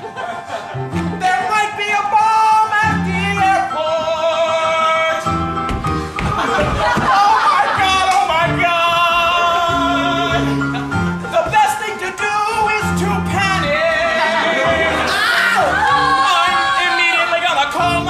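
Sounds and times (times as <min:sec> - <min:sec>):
man singing into a microphone: 0:01.2 - 0:05.4, 0:07.6 - 0:10.6, 0:11.3 - 0:15.1.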